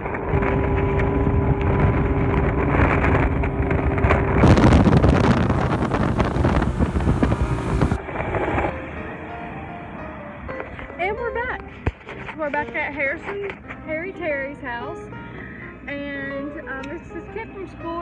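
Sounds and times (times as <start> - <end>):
wind buffeting microphone: 0.0 - 9.0
boat motor droning: 0.0 - 11.8.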